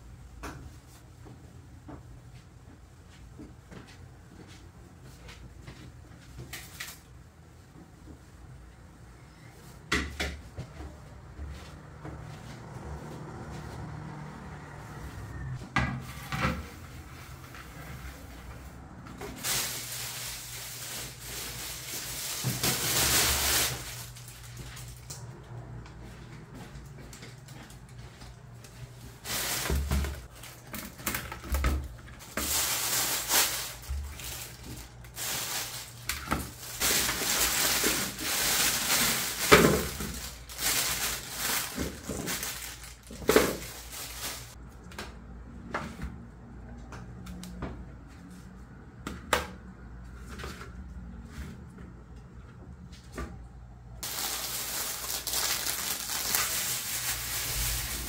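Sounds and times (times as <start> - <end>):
plastic bags rustling: 19.2 - 25.3, 27.2 - 44.6, 54.0 - 58.0.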